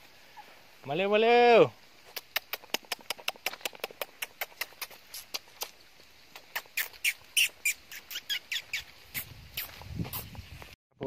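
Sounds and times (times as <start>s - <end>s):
tongue clicking: 2.1s - 10.2s
squeaky tongue clicks: 2.1s - 10.3s.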